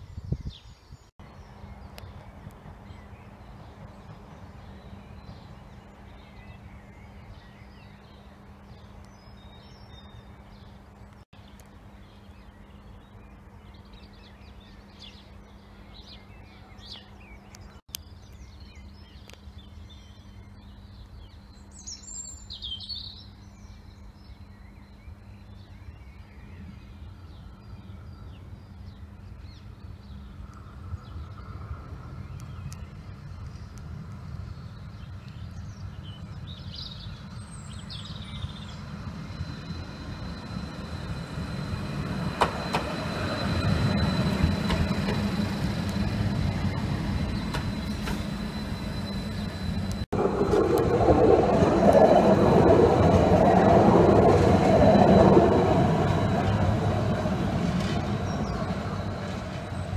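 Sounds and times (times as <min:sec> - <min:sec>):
birds chirping: 0:00.0 - 0:59.9
low rumble: 0:30.0 - 0:59.9.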